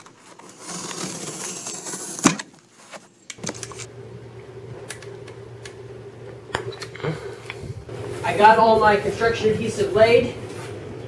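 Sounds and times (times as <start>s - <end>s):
cardboard scraping: 0.0s - 3.9s
low hum: 3.4s - 11.0s.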